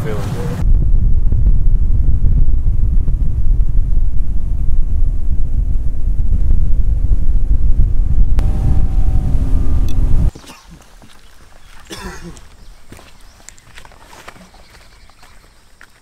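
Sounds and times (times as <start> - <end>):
wind buffeting microphone: 0.5 - 15.5
outboard motor drone: 8.4 - 10.3.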